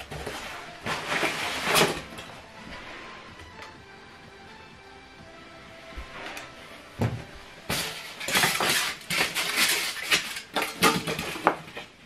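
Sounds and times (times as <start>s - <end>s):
foam pieces scraping and knocking: 0.0s - 2.3s, 7.7s - 12.0s.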